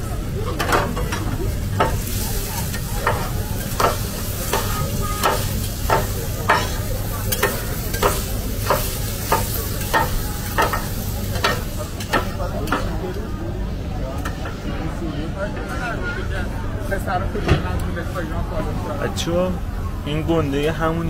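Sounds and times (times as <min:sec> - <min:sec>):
cleaver clanking on griddle: 0:00.5 - 0:13.0
meat sizzling: 0:01.6 - 0:12.3.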